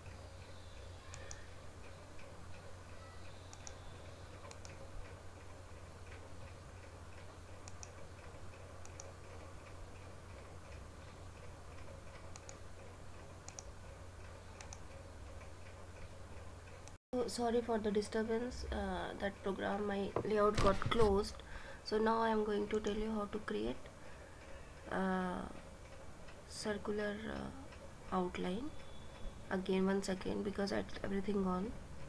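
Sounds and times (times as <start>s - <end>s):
faint rapid ticking: 0.0s - 20.6s, 21.3s - 32.0s
low electrical hum: 0.0s - 32.0s
computer mouse clicking: 0.1s - 5.5s, 7.2s - 16.1s.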